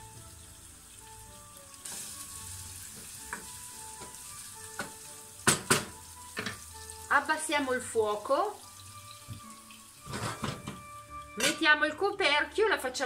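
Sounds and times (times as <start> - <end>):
vegetables sizzling in oil: 0.0 - 13.0
spoon knocking against pan: 4.8 - 6.6.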